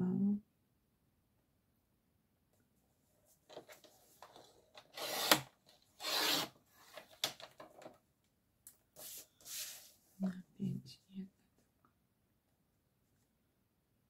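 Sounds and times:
paper trimmer click: 4.8 - 5.5
trimmer blade strokes: 5.0 - 6.5
paper sliding across board: 9.0 - 10.0.

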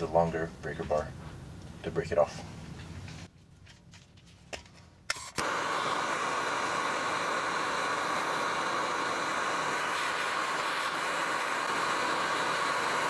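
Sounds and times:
gas torch hissing: 5.1 - 13.0.

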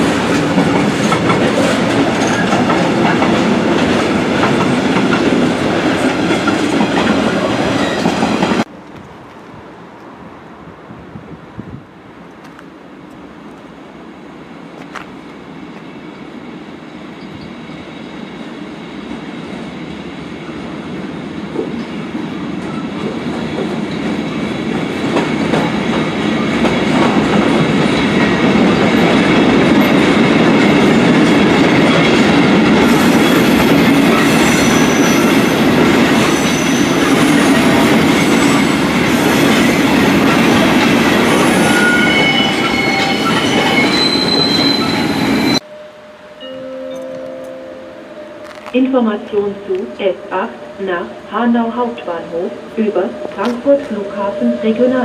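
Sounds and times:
train wheels rumbling on rails: 0.0 - 10.2, 14.6 - 45.6
high wheel squeals: 32.9 - 39.7, 40.3 - 45.9.

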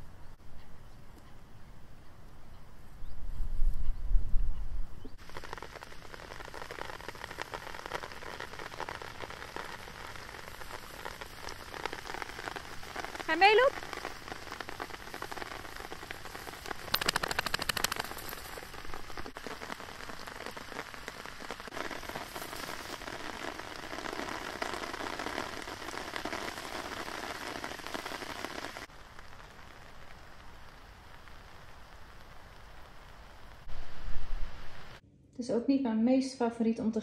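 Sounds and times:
tall grass rustling and crackling: 5.2 - 35.0.

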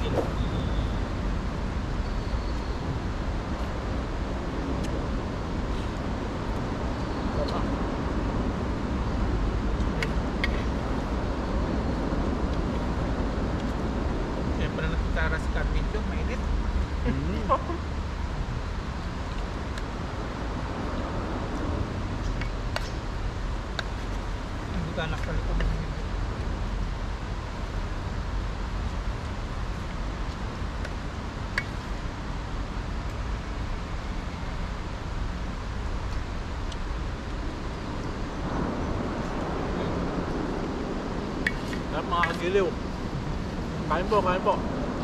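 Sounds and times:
low outdoor background rumble: 0.0 - 45.0
low rumble: 37.4 - 41.5.

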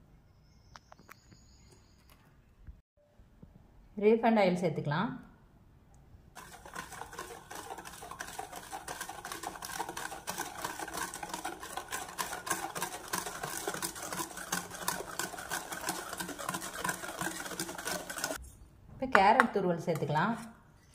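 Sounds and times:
whisk clicking against metal bowl: 6.4 - 18.4.

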